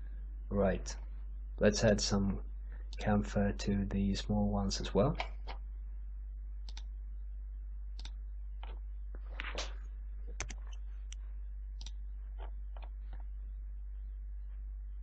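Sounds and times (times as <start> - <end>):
low electrical hum: 0.0 - 15.0
computer mouse clicking: 6.6 - 6.9, 8.0 - 8.2, 10.4 - 11.2.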